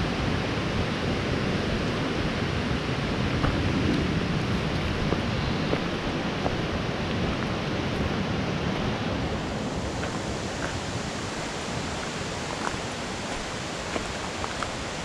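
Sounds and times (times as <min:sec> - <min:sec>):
rushing outdoor noise: 0:00.0 - 0:15.0.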